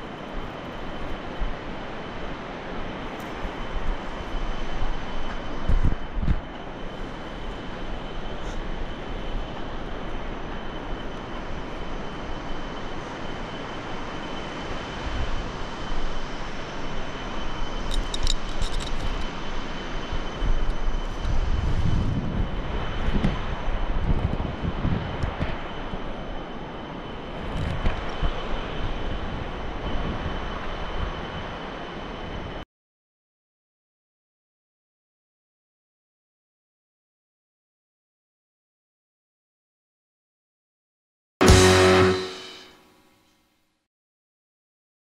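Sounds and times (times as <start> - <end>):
wind rushing over microphone: 0.0 - 32.6.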